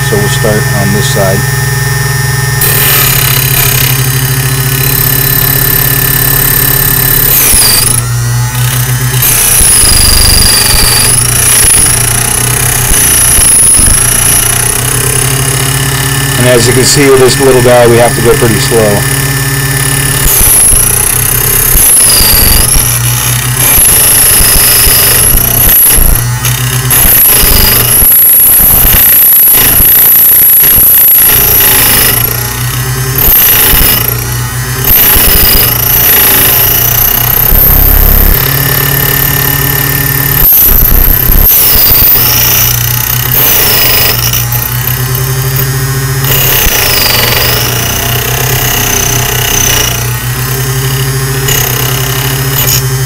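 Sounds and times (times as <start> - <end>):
key cutter wheel screeching: 0.0 - 53.0
small motor humming: 0.0 - 53.0.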